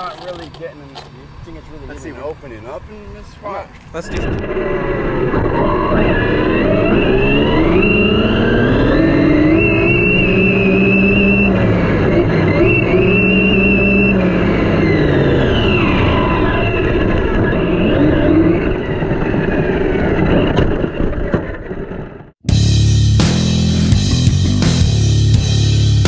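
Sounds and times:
rc truck motor whine: 0:04.1 - 0:22.2.

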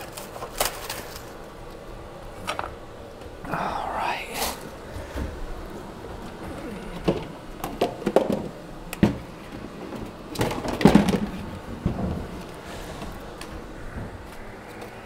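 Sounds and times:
kitchen items knocking and clunking: 0:06.3 - 0:13.1.

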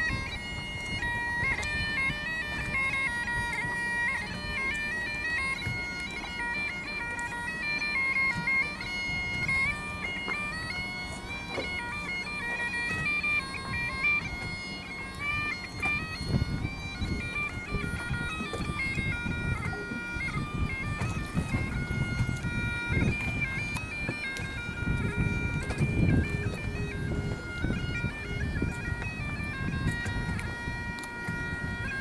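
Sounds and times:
bagpipes playing melody: 0:00.0 - 0:32.0.

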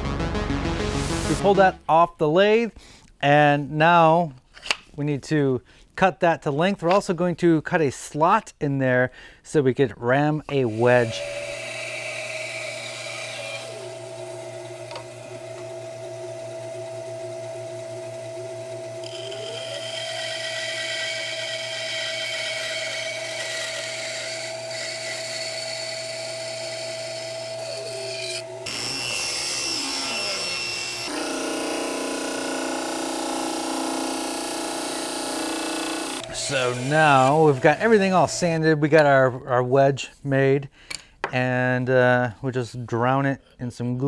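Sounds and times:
workshop sound: 0:00.0 - 0:09.0, 0:09.7 - 0:42.5
power saw cutting wood: 0:10.5 - 0:38.5.

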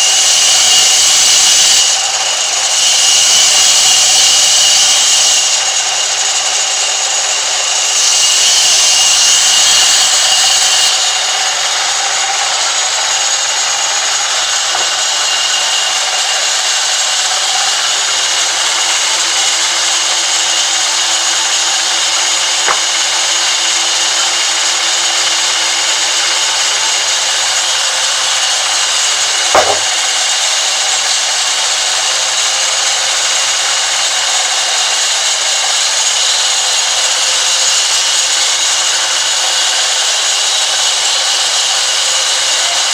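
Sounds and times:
band saw cutting log: 0:00.0 - 0:42.9
sharp knock: 0:22.6 - 0:22.9, 0:29.5 - 0:30.0.

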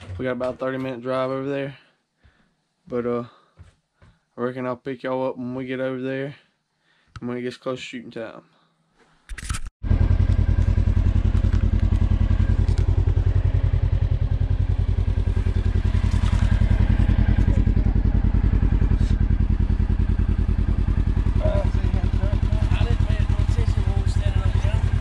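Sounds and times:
engine idling: 0:09.8 - 0:25.0.

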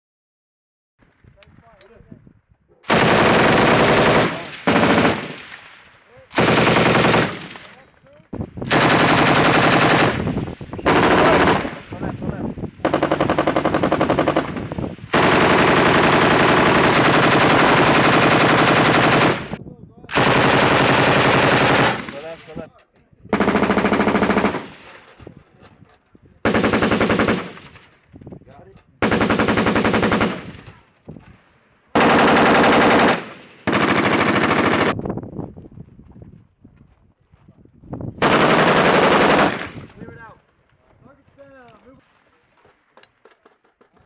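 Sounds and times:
machine gun automatic fire: 0:02.8 - 0:05.5, 0:06.3 - 0:07.7, 0:08.7 - 0:11.8, 0:12.8 - 0:22.3, 0:23.3 - 0:25.1, 0:26.4 - 0:27.9, 0:29.0 - 0:30.8, 0:31.9 - 0:35.0, 0:38.2 - 0:39.9.

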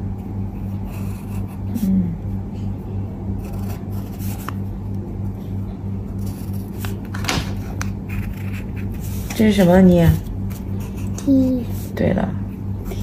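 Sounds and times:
steady low hum: 0:00.0 - 0:13.0
pencil scratching on paper: 0:00.5 - 0:01.8, 0:03.4 - 0:04.6, 0:06.2 - 0:12.0.

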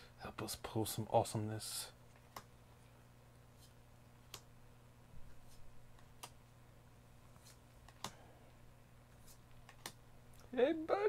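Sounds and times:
low steady hum: 0:00.0 - 0:11.0
trading cards flipped by hand: 0:02.1 - 0:02.5, 0:05.3 - 0:06.4, 0:07.3 - 0:08.2, 0:09.1 - 0:10.0.

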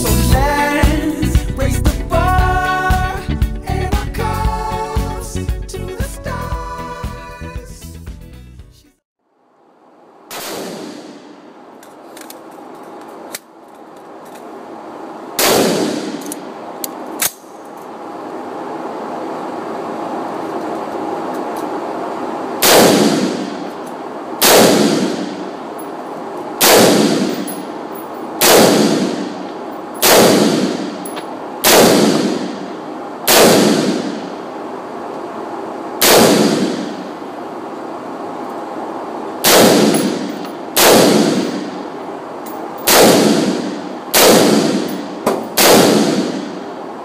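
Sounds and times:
rifle shots with echo: 0:10.3 - 0:11.5, 0:15.4 - 0:16.5, 0:22.6 - 0:23.7, 0:24.4 - 0:25.7, 0:26.6 - 0:34.5, 0:36.0 - 0:37.2, 0:39.4 - 0:41.9, 0:42.8 - 0:46.7.

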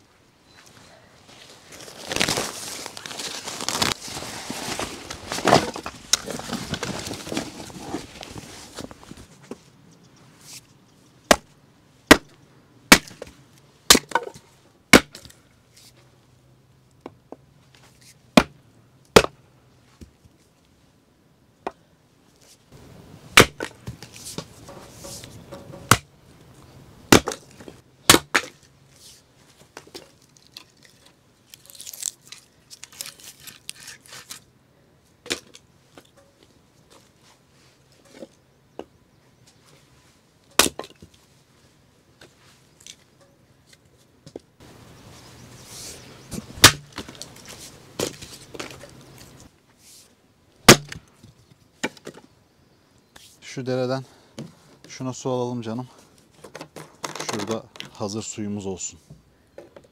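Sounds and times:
hatchet chopping firewood: 0:11.3 - 0:11.5, 0:12.1 - 0:13.3, 0:13.9 - 0:15.4, 0:18.4 - 0:19.4, 0:23.4 - 0:24.0, 0:25.6 - 0:26.1, 0:27.1 - 0:28.6, 0:40.6 - 0:41.0, 0:46.4 - 0:47.2, 0:50.6 - 0:51.0.

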